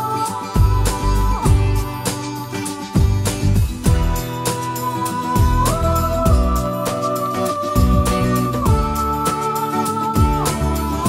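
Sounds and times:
steady low beat: 0:03.0 - 0:04.3.

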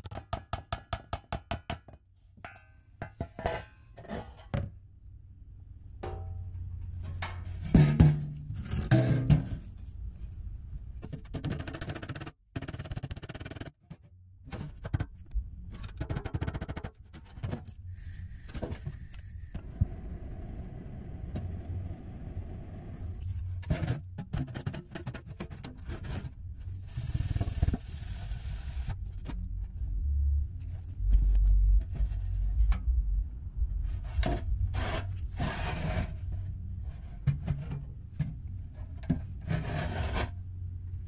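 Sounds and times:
metal box scraping and knocking: 0:02.4 - 0:04.8, 0:06.0 - 0:10.0, 0:11.0 - 0:19.5, 0:23.4 - 0:26.8, 0:33.8 - 0:40.5
butane torch hissing: 0:17.9 - 0:23.2, 0:26.9 - 0:28.9.

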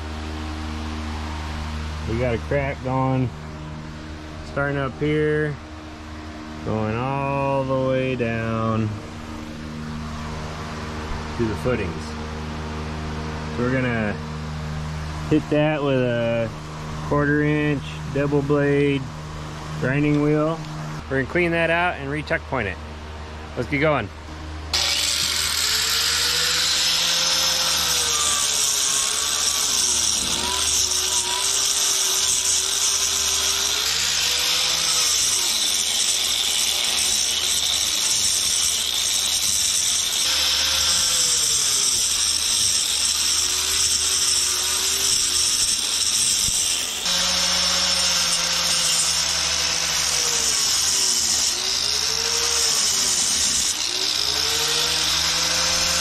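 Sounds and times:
angle grinder cutting mortar: 0:24.7 - 0:56.0.

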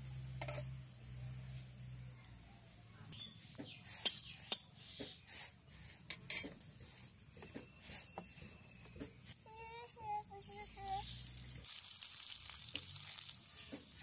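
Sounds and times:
spoon clinking on metal bowls: 0:06.1 - 0:06.6.

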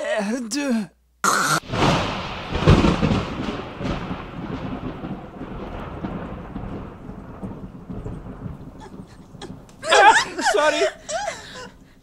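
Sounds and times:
faint crackling: 0:01.1 - 0:12.0
deep rumble: 0:01.7 - 0:09.9.

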